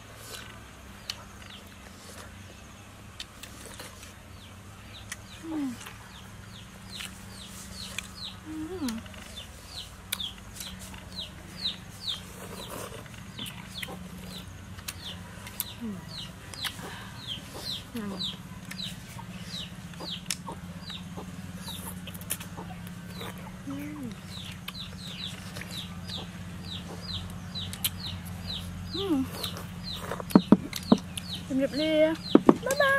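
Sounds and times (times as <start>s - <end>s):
chicks peeping: 3.3s - 32.9s
hen clucking: 16.0s - 32.9s.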